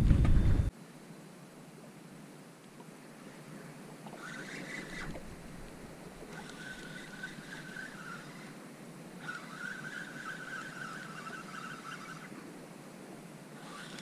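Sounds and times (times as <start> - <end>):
low rushing background: 0.0 - 1.2
fishing reel whine: 4.1 - 12.5, 13.5 - 14.0.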